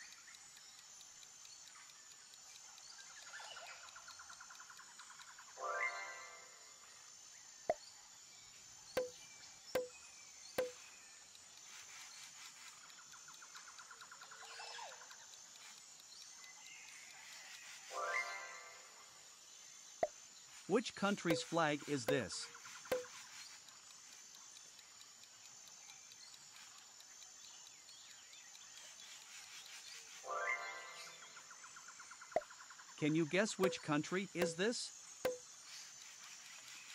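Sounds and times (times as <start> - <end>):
faint quick ticks: 0.0 - 5.4, 10.6 - 17.9, 20.0 - 30.2
faint high-pitched hiss: 0.0 - 36.9
pop sound effects: 21.2 - 21.5, 33.6 - 34.7.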